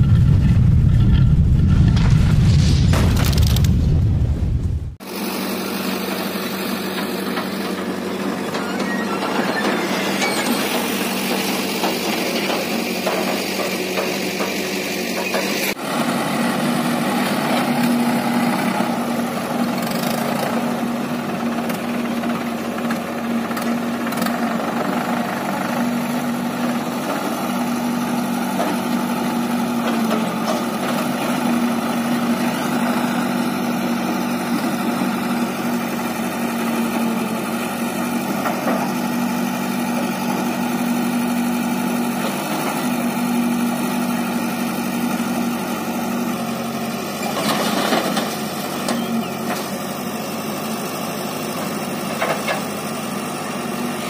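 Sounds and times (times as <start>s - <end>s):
rush of noise: 0.0s - 5.2s
diesel engines idling: 5.0s - 54.0s.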